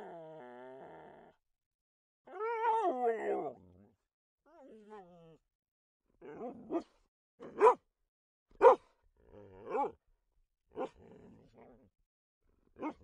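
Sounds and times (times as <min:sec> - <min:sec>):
dog barking: 0:06.3 - 0:07.8, 0:08.6 - 0:08.9, 0:09.6 - 0:10.0, 0:10.7 - 0:11.0, 0:12.8 - 0:13.0.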